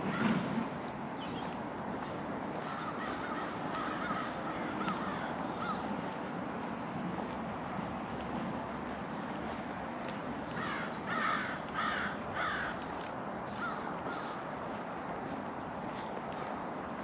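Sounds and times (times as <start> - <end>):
outdoor background noise: 0.0 - 17.0
crow cawing: 2.6 - 5.9, 10.5 - 12.9.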